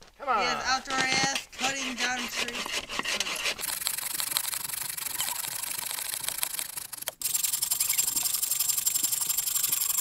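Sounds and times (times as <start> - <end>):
bow saw cutting wood: 1.1 - 4.4.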